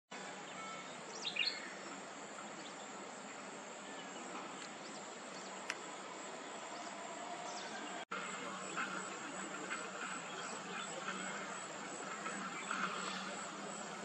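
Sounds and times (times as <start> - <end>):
outdoor ambient hiss: 0.1 - 14.0
bird chirps: 0.4 - 1.8.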